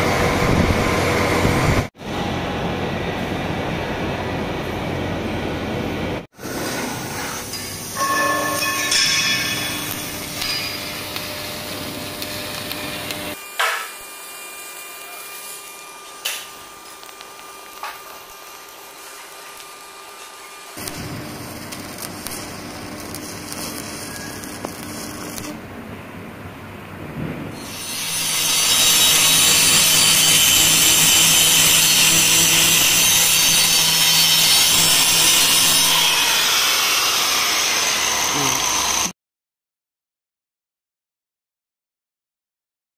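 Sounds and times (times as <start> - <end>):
arc welding crackle: 6.4 - 25.7, 27.2 - 39.1
angle grinder grinding: 6.6 - 25.6, 27.6 - 39.1.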